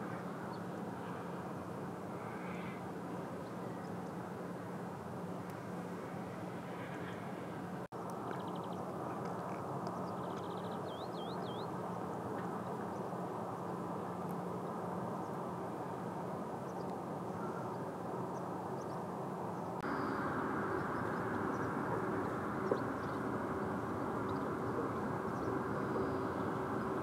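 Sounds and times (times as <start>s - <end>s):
low machine-like hum: 18.8s - 27.0s.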